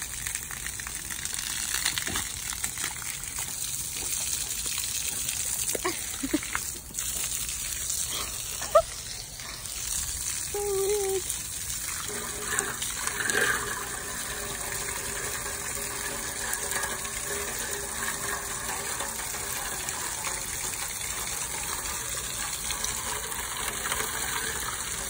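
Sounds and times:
hose water splashing on stone: 0.0 - 25.0.

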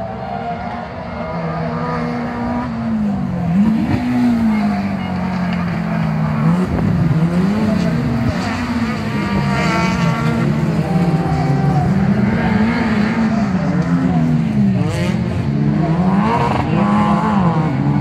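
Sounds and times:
race car engines revving: 0.0 - 18.0.

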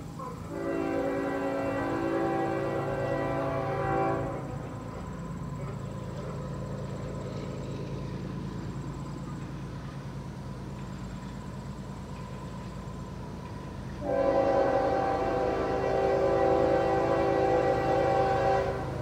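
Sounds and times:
freight train rumbling: 0.0 - 19.0
locomotive air horn chord: 0.5 - 5.1, 14.0 - 19.0.

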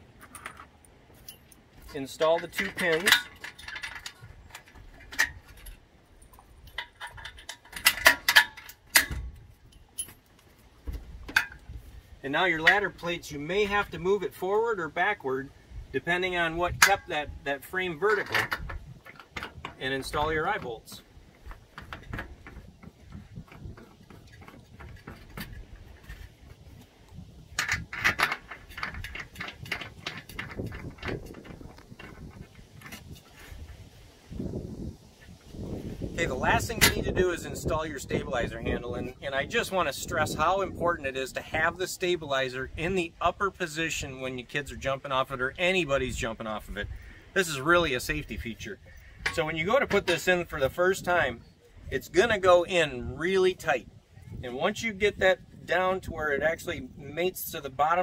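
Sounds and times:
small metal clicks and rattles: 0.1 - 10.6, 18.0 - 33.8
metal pins clinking and clicking: 0.2 - 10.4.

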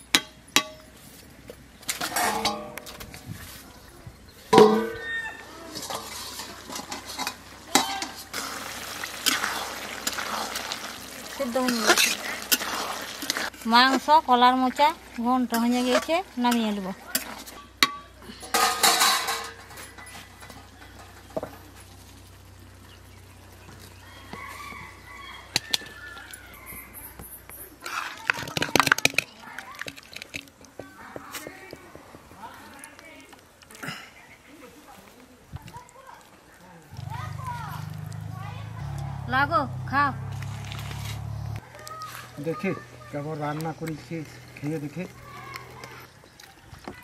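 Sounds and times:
light sizzle: 5.5 - 39.3, 40.2 - 46.6
spatula scraping a pan: 5.7 - 10.7, 11.5 - 14.1, 15.5 - 16.2.

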